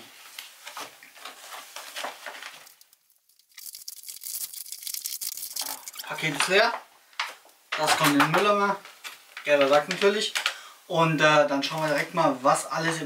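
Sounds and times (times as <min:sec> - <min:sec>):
plastic pouch crinkling: 0:01.2 - 0:06.4.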